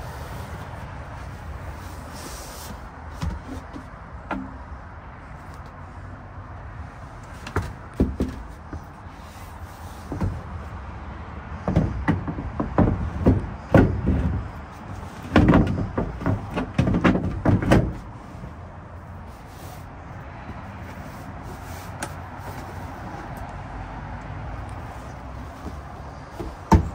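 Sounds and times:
wooden panels knocking and rattling: 7.5s - 8.9s, 11.6s - 18.1s, 26.2s - 26.9s.

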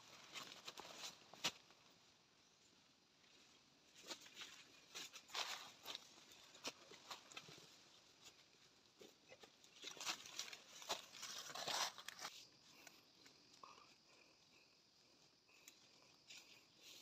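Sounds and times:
footsteps in dry leaves: 4.0s - 7.8s, 9.7s - 12.3s
twigs crackling: 9.4s - 13.5s.

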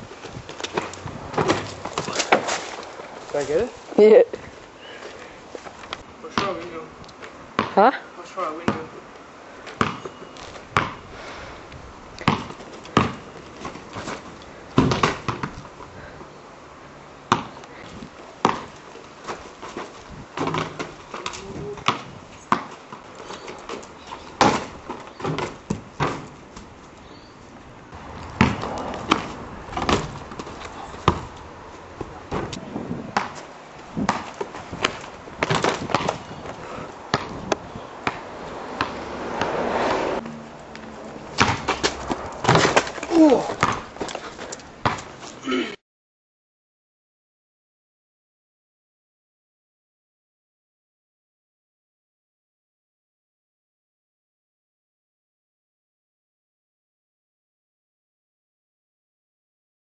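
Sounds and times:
basketball bouncing on concrete: 6.3s - 6.7s, 7.6s - 7.9s, 8.6s - 9.0s, 9.7s - 11.0s, 12.2s - 14.2s, 14.8s - 15.6s, 17.3s - 17.6s, 18.4s - 18.8s, 20.4s - 26.4s, 28.0s - 31.4s, 32.0s - 33.4s, 34.0s - 39.6s, 41.4s - 44.2s, 44.8s - 45.1s.

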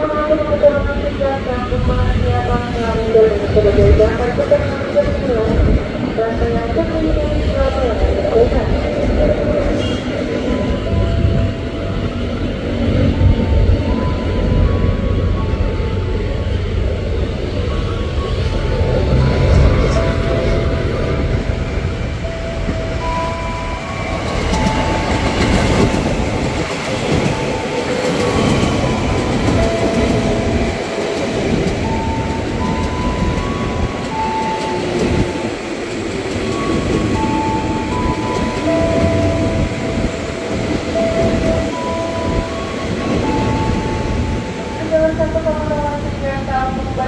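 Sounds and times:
train wheels rumbling on rails: 0.0s - 47.0s.

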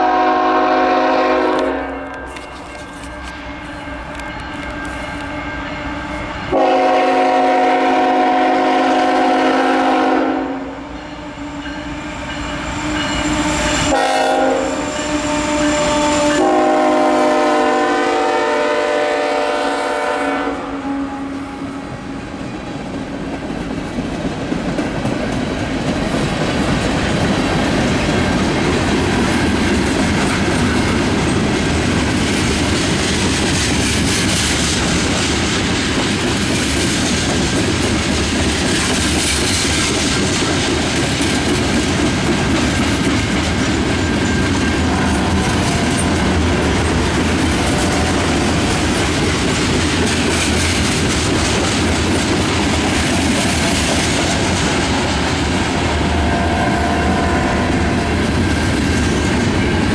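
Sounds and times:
locomotive horn blasts: 0.0s - 11.4s, 12.9s - 21.9s, 56.2s - 57.8s
rumble of wheels on rail: 0.0s - 59.9s.

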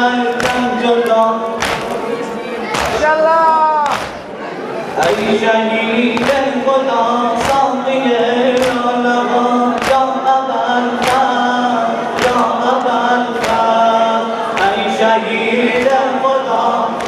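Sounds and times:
men slapping chests in unison: 0.2s - 3.2s, 3.8s - 4.3s, 6.1s - 6.6s, 7.3s - 7.8s, 8.4s - 9.0s, 9.7s - 13.9s, 14.5s - 15.0s, 15.6s - 17.0s
chanted lament: 4.9s - 17.0s.

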